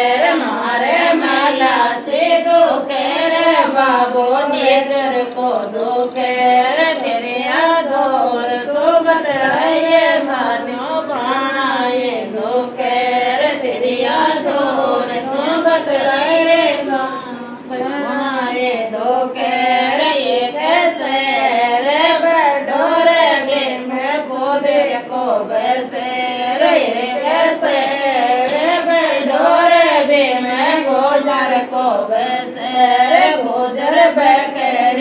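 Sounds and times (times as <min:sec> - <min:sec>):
women singing folk song: 0:00.0 - 0:35.0.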